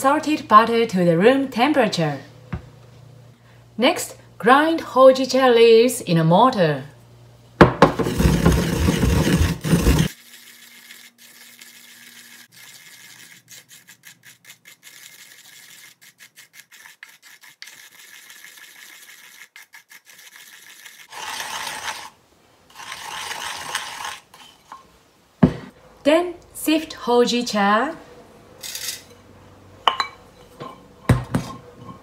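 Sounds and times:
pestle grinding in ceramic mortar: 0:07.7 - 0:22.1, 0:22.7 - 0:24.4.

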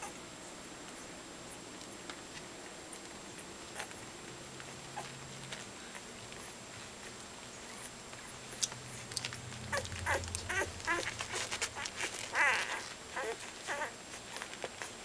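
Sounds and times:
small clicks and rustles: 0:00.8 - 0:15.0
puppies squeaking and whimpering: 0:05.0 - 0:15.0.

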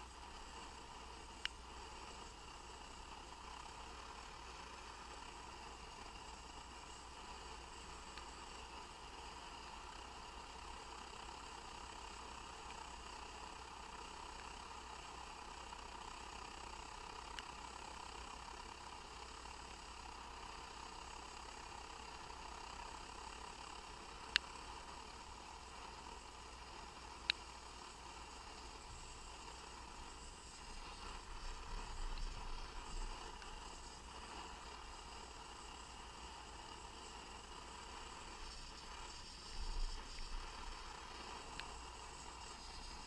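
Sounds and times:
camping stove hissing: 0:00.0 - 0:43.0
sharp ticks: 0:00.1 - 0:03.9, 0:07.8 - 0:08.6, 0:16.3 - 0:17.9, 0:23.3 - 0:25.1, 0:26.7 - 0:43.0.

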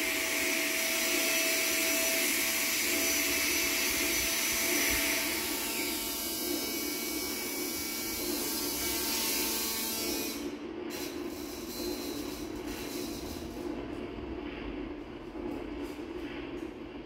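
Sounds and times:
buzzing whirring noise: 0:00.0 - 0:17.0.

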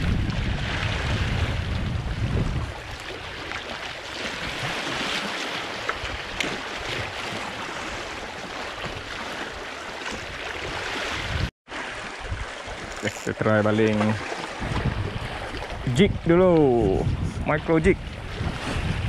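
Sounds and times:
wind buffeting microphone: 0:00.0 - 0:03.5, 0:10.6 - 0:11.5, 0:14.1 - 0:19.0.

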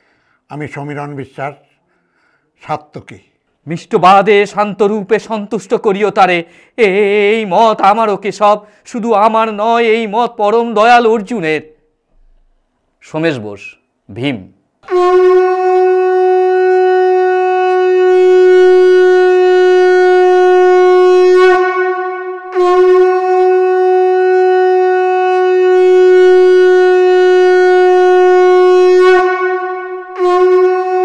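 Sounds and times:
conch shell blasts: 0:14.8 - 0:31.0.

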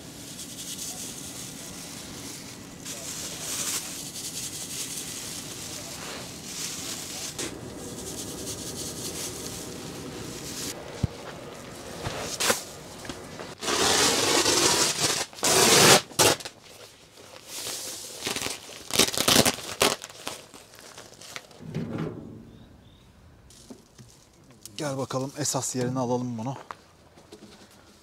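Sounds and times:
plastic bag rustling: 0:00.0 - 0:14.0, 0:16.6 - 0:21.8.

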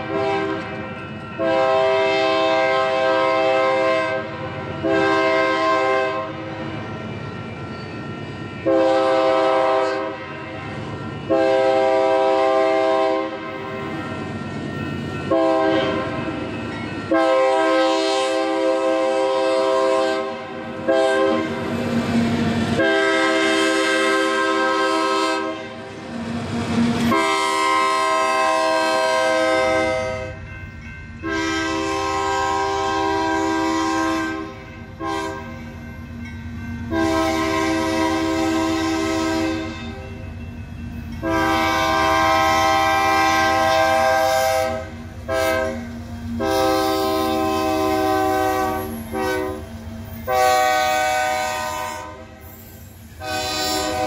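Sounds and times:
locomotive air horn blasts: 0:00.0 - 0:00.7, 0:01.4 - 0:06.4, 0:08.7 - 0:10.4, 0:11.3 - 0:13.6, 0:15.3 - 0:16.2, 0:17.1 - 0:21.7, 0:22.8 - 0:25.9, 0:27.1 - 0:30.4, 0:31.2 - 0:35.5, 0:36.9 - 0:40.0, 0:41.2 - 0:52.4, 0:53.2 - 0:54.0
train rumble and wheel clatter: 0:00.0 - 0:54.0.

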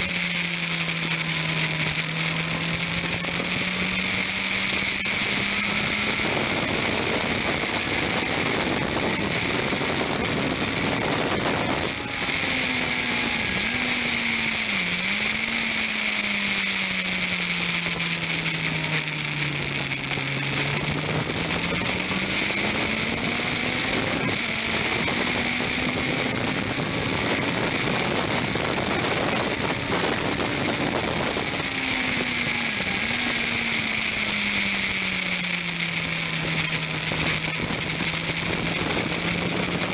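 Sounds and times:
motorcycle engine revving: 0:00.0 - 0:39.9.

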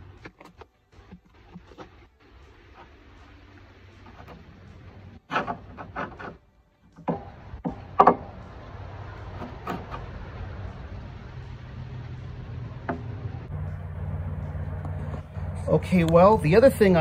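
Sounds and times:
metal-on-metal knocks: 0:07.0 - 0:08.4.

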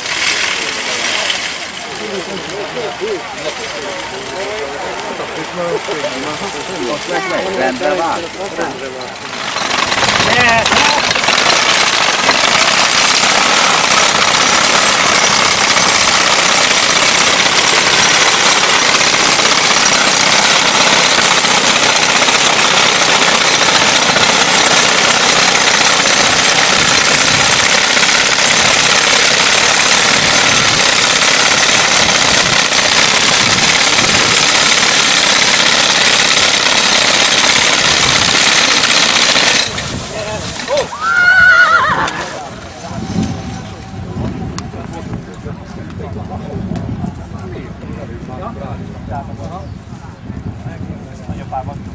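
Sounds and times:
reaper knife and gears chattering: 0:09.4 - 0:40.9.

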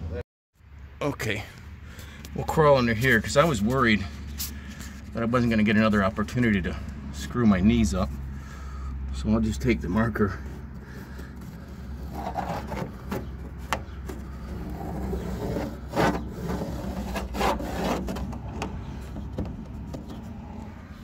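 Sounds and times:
marker scratching on board: 0:10.8 - 0:18.7.

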